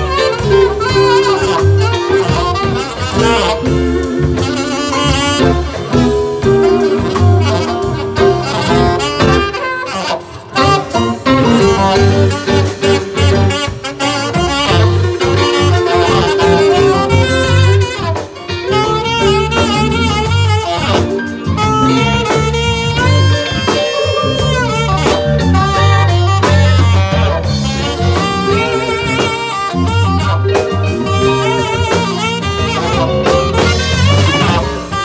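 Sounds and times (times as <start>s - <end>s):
bass: 0.0s - 35.0s
drum kit: 0.0s - 35.0s
electric guitar: 0.0s - 35.0s
saxophone melody with vibrato: 0.0s - 35.0s.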